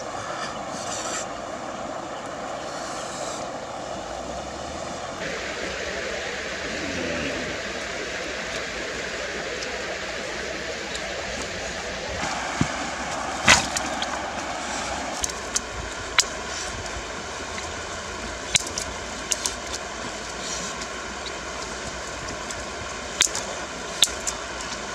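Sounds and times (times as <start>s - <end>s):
steady rushing background: 10.2s - 16.3s.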